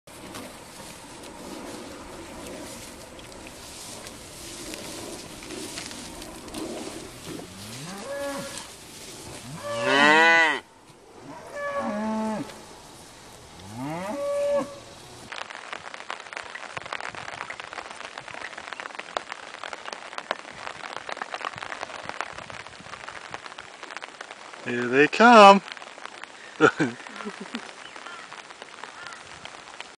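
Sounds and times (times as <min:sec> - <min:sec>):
crackling noise with clicks: 0:00.1 - 0:30.0
cattle mooing: 0:06.5 - 0:08.7, 0:09.4 - 0:10.6, 0:11.2 - 0:12.6, 0:13.6 - 0:14.9.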